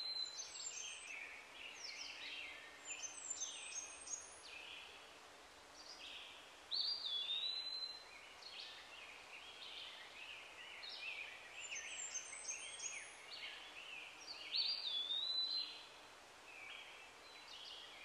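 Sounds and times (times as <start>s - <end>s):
faint background hiss: 0.0s - 18.0s
songbird singing: 0.0s - 18.0s.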